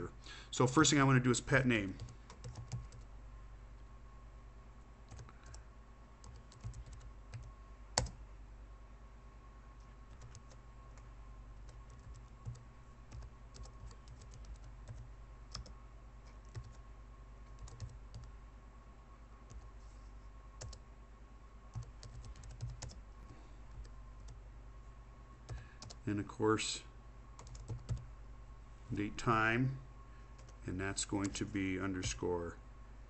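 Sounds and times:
steady low hum: 0.0s - 33.0s
faint keyboard typing: 2.0s - 3.1s, 5.0s - 8.2s, 9.8s - 16.8s, 17.4s - 18.4s, 19.5s - 19.8s, 20.6s - 20.8s, 21.7s - 24.4s, 25.4s - 26.0s, 27.4s - 28.1s, 30.3s - 32.2s.

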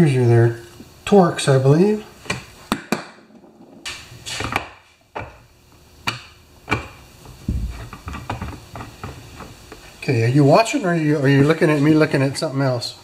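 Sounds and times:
dull thump on workbench: 7.4s - 7.9s.

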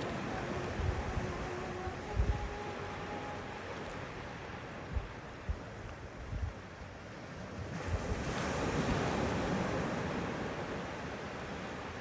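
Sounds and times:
surf breaking on beach: 7.4s - 12.0s.

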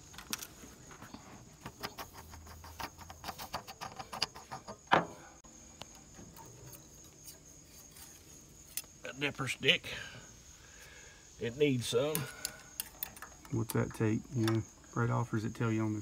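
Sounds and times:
crickets chirping: 0.0s - 16.0s
metal cap clicks and scrapes: 1.6s - 5.0s, 12.1s - 14.6s.

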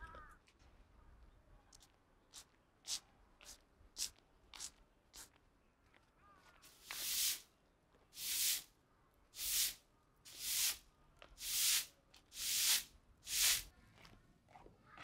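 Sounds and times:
broom sweeping ground: 6.6s - 7.5s, 8.1s - 8.7s, 9.4s - 10.8s, 11.4s - 13.7s.

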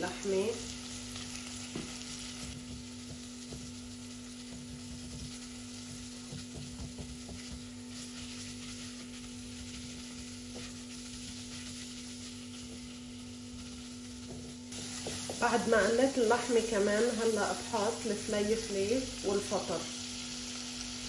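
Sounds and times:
meat and onions sizzling: 0.0s - 21.0s
steady low hum: 0.0s - 21.0s
spatula scraping a pan: 4.4s - 15.5s.

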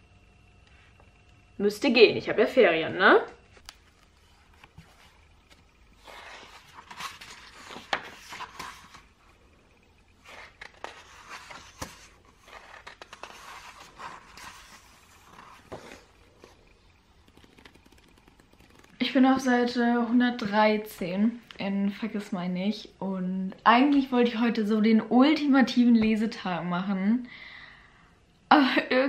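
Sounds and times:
book pages turning: 3.5s - 9.3s, 10.1s - 19.2s.

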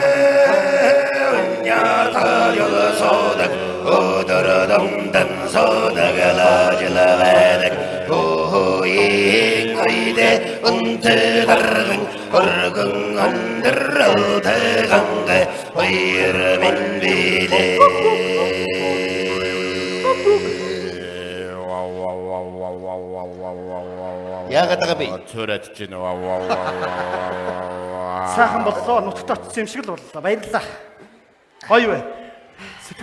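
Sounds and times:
man chanting long held notes: 15.8s - 25.1s.

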